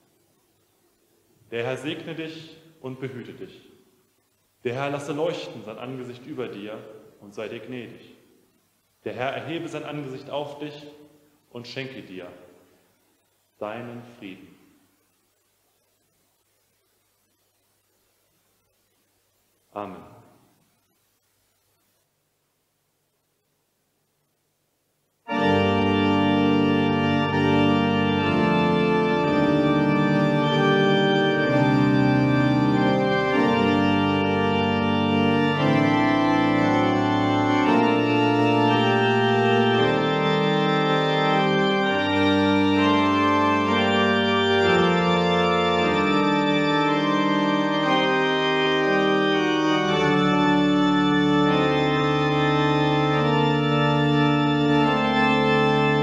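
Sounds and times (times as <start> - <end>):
pipe organ chords: 1.4 - 3.7, 4.6 - 8.1, 9.0 - 12.4, 25.3 - 56.0.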